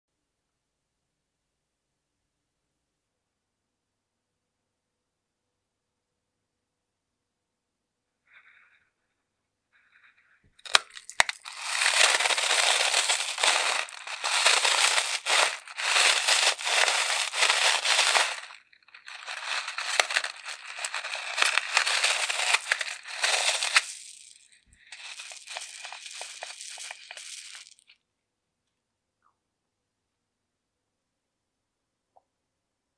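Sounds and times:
beads spilling into glass bowl: 10.6 - 27.9.

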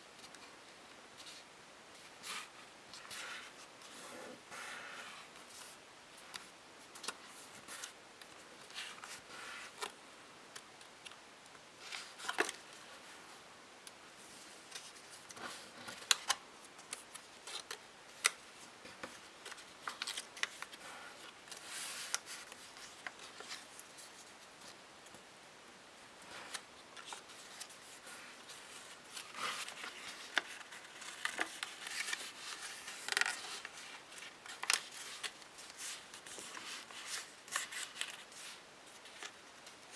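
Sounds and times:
paper rustling and crinkling: 11.8 - 13.0, 14.3 - 25.2, 26.2 - 39.9.

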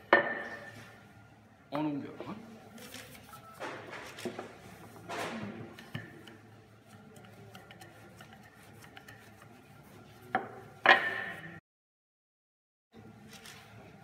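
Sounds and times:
rolling pin rubbing on dough: 5.8 - 11.4.

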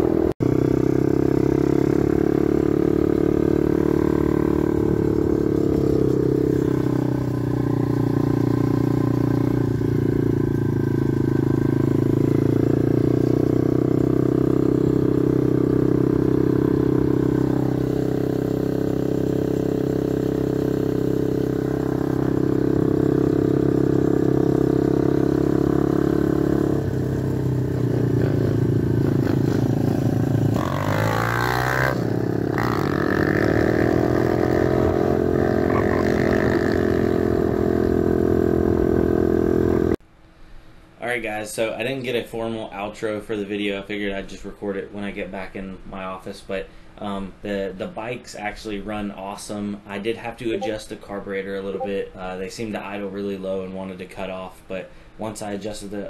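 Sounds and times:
motorbike engine running: 0.0 - 40.0.

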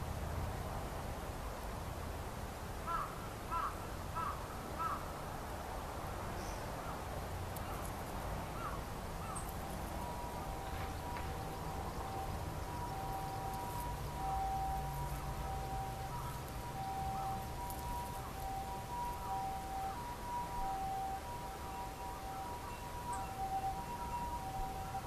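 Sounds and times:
faint steady tone: 0.0 - 25.0
crow cawing: 2.9 - 5.0, 8.6 - 9.4, 17.0 - 17.5.

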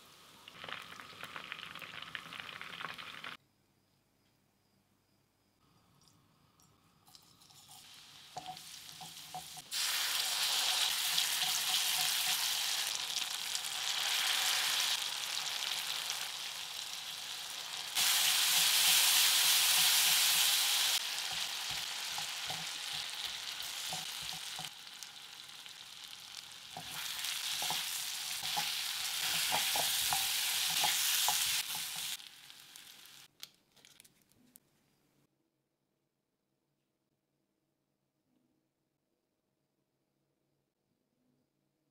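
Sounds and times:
sauce sizzling in a wok: 0.0 - 3.4, 7.4 - 33.3
spatula scraping a wok: 26.8 - 32.2.

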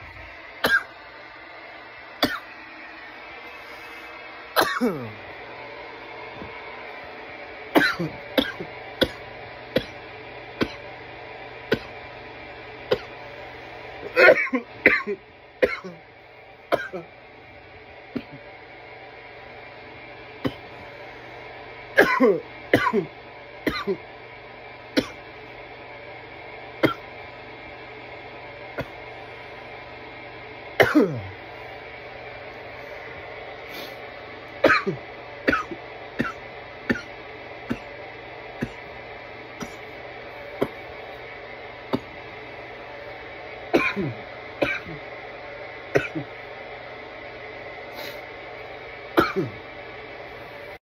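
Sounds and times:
man coughing: 0.6 - 1.0, 2.2 - 2.5, 4.6 - 5.2, 7.8 - 10.0, 14.0 - 16.0, 16.8 - 17.1, 18.1 - 18.4, 22.0 - 24.1, 30.8 - 31.4, 34.6 - 37.9, 38.6 - 38.9, 39.6 - 39.9, 43.8 - 45.0, 45.9 - 46.4, 49.2 - 49.6.

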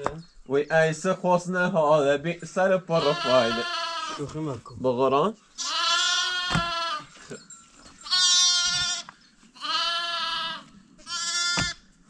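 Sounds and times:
lamb bleating: 2.9 - 4.4, 5.6 - 7.1, 8.0 - 11.8.

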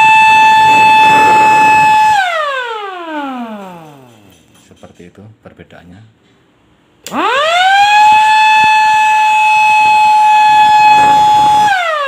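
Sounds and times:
motor-driven siren wailing: 0.0 - 4.0, 7.1 - 12.0.

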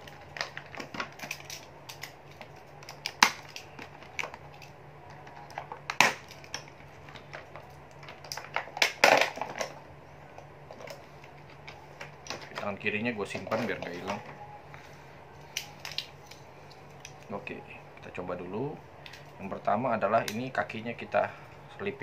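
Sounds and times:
plastic packaging crackling: 0.0 - 9.8
sharp plastic cracks: 0.0 - 9.8.

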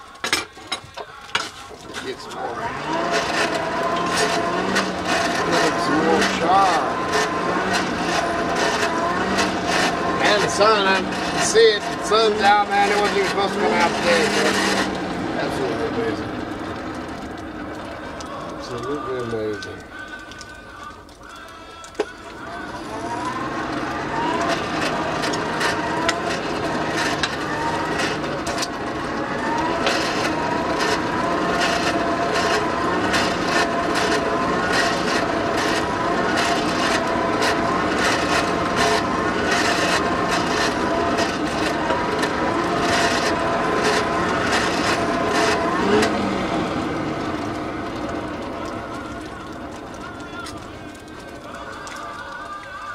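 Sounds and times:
blower whirring: 0.0 - 52.9
clicks: 16.3 - 52.9.

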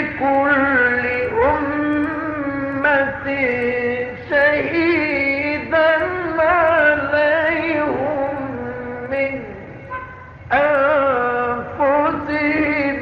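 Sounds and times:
man reciting in melodic chant: 0.0 - 13.0.

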